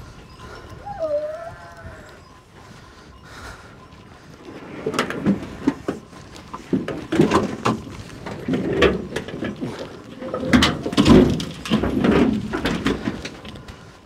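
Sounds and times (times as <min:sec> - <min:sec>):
wooden kennel knocking and scraping: 0:06.6 - 0:13.2.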